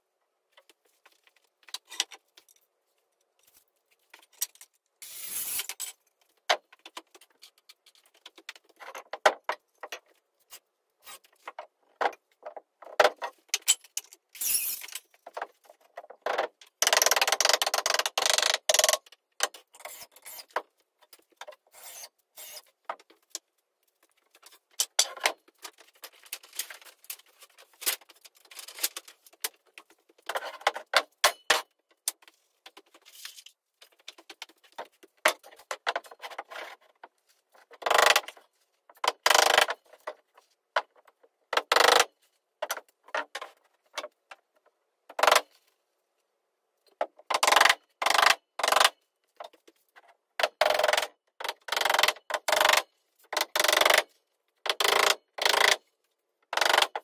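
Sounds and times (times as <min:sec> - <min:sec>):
wood and tools clattering: 0:00.5 - 0:45.7.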